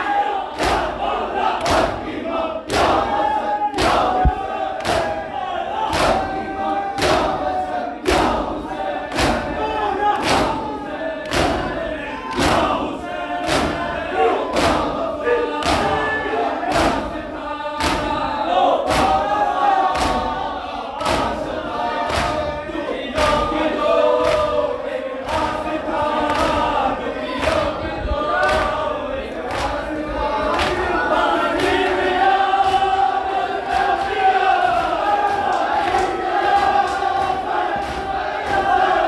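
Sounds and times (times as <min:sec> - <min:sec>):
men chanting together: 0:00.0 - 0:39.0
hands slapping chests: 0:03.8 - 0:05.2, 0:05.9 - 0:06.3, 0:09.1 - 0:09.6, 0:10.2 - 0:11.7, 0:13.4 - 0:13.8, 0:17.8 - 0:18.2, 0:18.9 - 0:20.4, 0:21.0 - 0:21.4, 0:22.1 - 0:22.5, 0:24.2 - 0:24.6, 0:25.2 - 0:27.8, 0:28.4 - 0:29.9, 0:30.5 - 0:31.0, 0:33.6 - 0:39.0.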